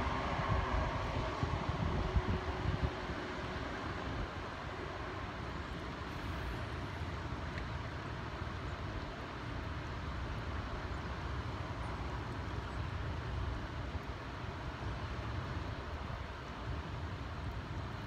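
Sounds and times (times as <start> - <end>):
wind buffeting microphone: 0.0 - 6.0.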